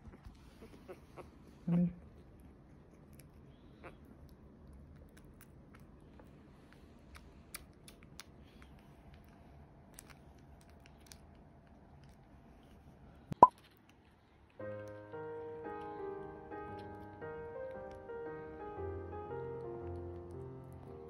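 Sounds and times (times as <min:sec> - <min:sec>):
kitten suckling wet clicks: 0:02.2 - 0:14.2
piano music: 0:14.6 - 0:21.0.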